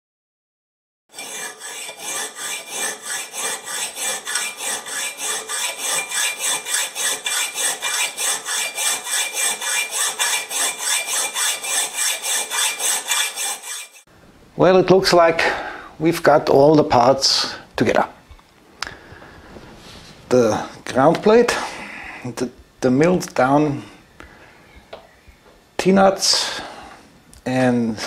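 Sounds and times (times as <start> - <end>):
rasping strokes: 1.1 - 14.1.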